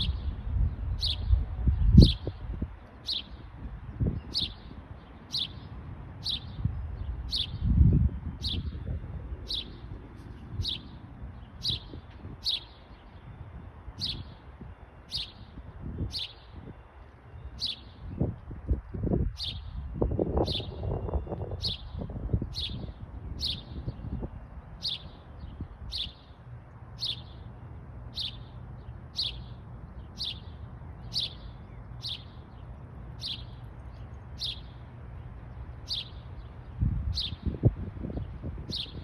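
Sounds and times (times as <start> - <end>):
songbird chirping: 0.0 - 39.0.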